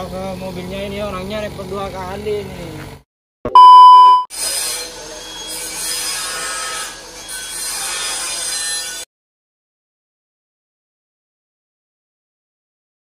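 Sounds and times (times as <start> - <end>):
test card tone beep: 3.5 - 4.3.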